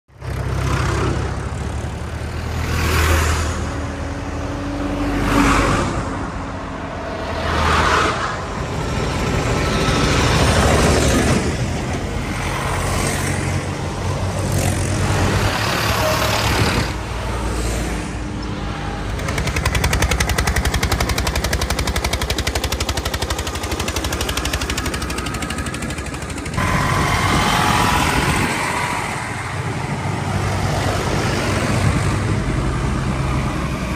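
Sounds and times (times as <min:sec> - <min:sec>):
tractors driving past: 0:00.1 - 0:33.9
tractor engine clatter: 0:18.4 - 0:32.9.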